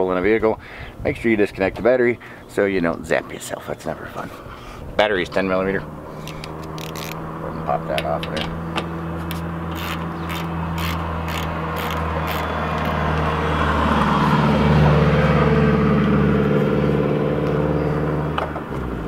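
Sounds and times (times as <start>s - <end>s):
engine hum: 2.1s - 19.0s
ratchet wrench clicking: 6.2s - 7.2s, 9.7s - 13.0s.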